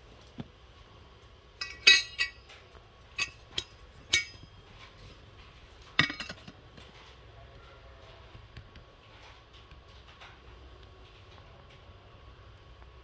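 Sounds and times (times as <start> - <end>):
metal flasks and lids clinking: 1.6 - 2.5, 3.2 - 4.5, 6.0 - 6.6.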